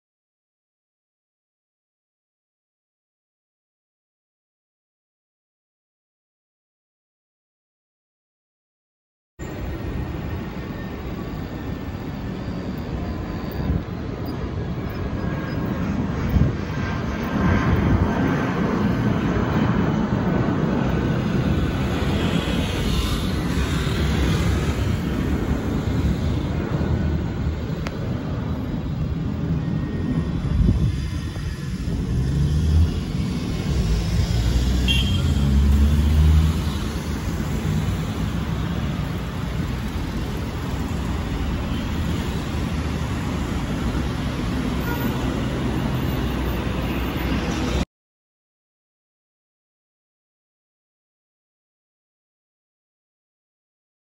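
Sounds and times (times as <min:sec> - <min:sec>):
jet airliner engines rumbling: 0:09.4 - 0:47.9
street traffic noise: 0:09.4 - 0:47.9
road vehicle engine passing: 0:30.2 - 0:47.8.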